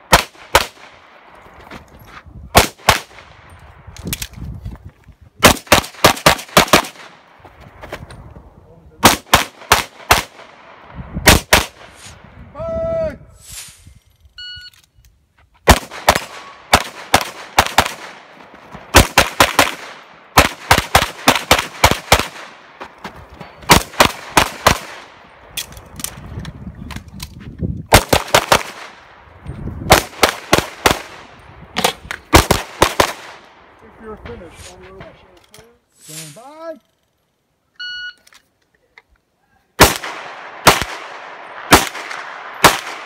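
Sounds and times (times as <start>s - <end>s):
pistol shots with echo: 9.0s - 11.8s, 39.8s - 43.0s.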